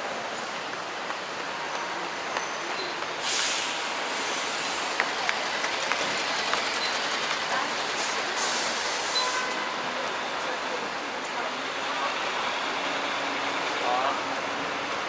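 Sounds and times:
street rumble: 0:00.0 - 0:15.0
bus air hiss: 0:03.2 - 0:05.0, 0:08.0 - 0:09.6.

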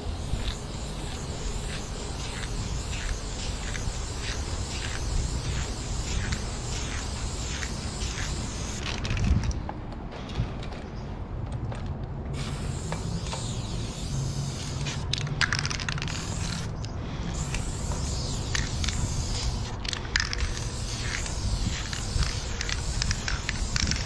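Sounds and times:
spray paint can hissing: 0:00.0 - 0:09.3, 0:12.3 - 0:24.0
spray can clicks: 0:12.8 - 0:13.7.

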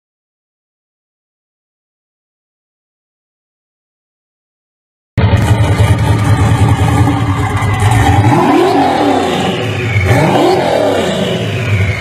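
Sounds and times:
car engine idling and revving: 0:05.2 - 0:12.0.

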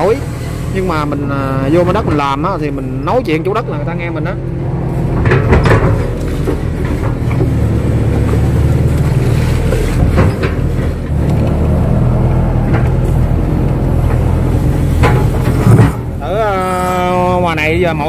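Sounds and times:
excavator diesel engine running: 0:00.0 - 0:18.0
machine knocks: 0:05.1 - 0:08.4, 0:14.0 - 0:16.2.

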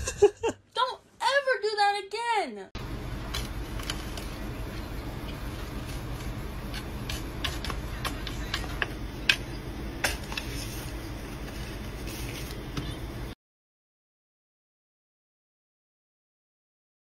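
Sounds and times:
steady low hum: 0:02.8 - 0:13.4.

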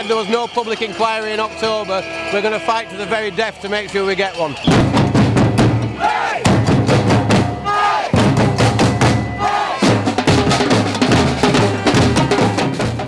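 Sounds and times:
crowd shouting: 0:00.0 - 0:10.2, 0:11.2 - 0:13.0
bass drums: 0:04.6 - 0:13.0.

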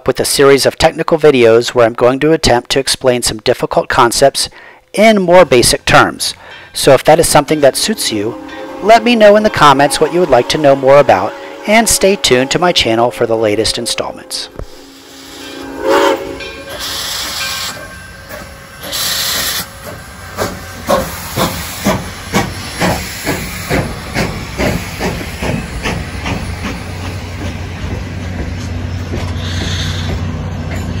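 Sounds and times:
train rumbling past: 0:06.3 - 0:31.0
locomotive exhaust chuffs: 0:06.4 - 0:31.0
steam hiss bursts: 0:07.8 - 0:27.8.

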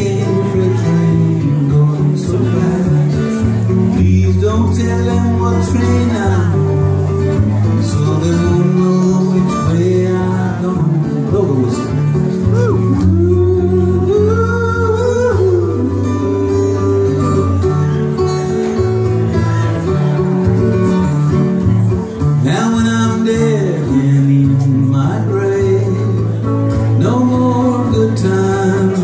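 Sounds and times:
acoustic guitar strumming: 0:00.0 - 0:29.0.

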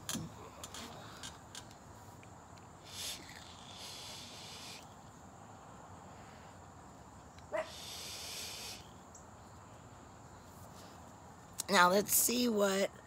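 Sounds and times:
vape drawing hiss: 0:02.8 - 0:04.9, 0:07.7 - 0:08.9
exhaled breath hissing: 0:02.8 - 0:05.0, 0:07.6 - 0:09.0.

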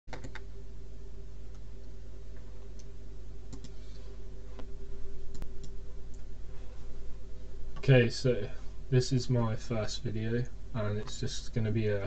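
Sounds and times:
low electrical hum: 0:00.1 - 0:12.0
computer mouse clicks: 0:03.5 - 0:03.8, 0:05.3 - 0:06.2.

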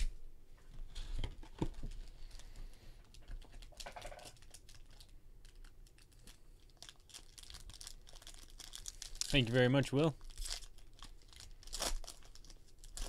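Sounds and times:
foil packs crinkling: 0:03.2 - 0:13.0.

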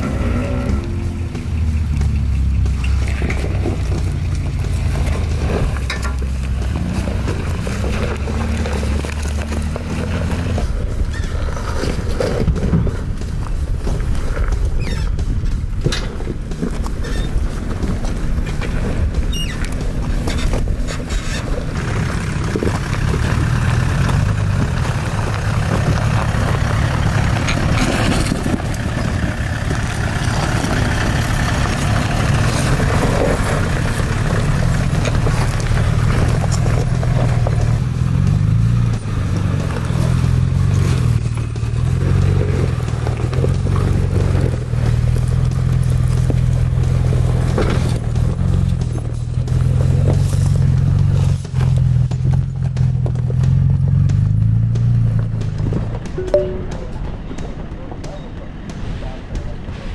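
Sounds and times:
truck engines at low revs: 0:00.0 - 0:59.9
tyres scraping over rock: 0:02.5 - 0:56.0.

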